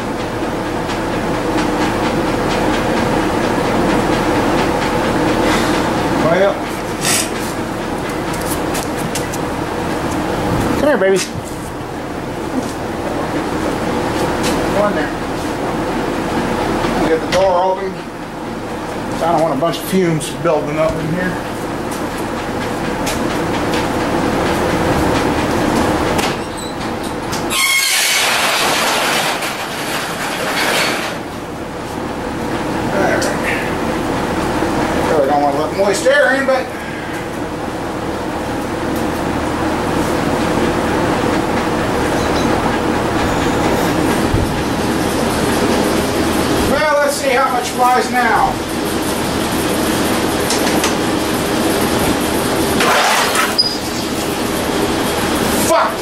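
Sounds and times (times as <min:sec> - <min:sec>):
garage door rollers squealing and rumbling: 0:22.5 - 0:31.4, 0:40.3 - 0:48.5, 0:51.3 - 0:56.0.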